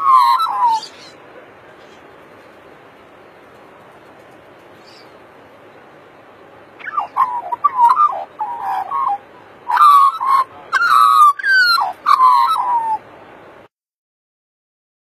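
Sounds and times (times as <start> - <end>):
magpie warbling song: 0.0 - 1.2, 6.8 - 13.0
faint background hiss: 0.0 - 13.7.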